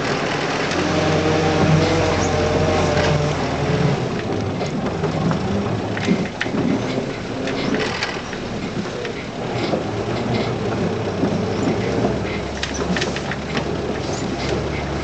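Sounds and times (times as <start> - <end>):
vehicle body knocks and rattles: 4.2 - 15.0.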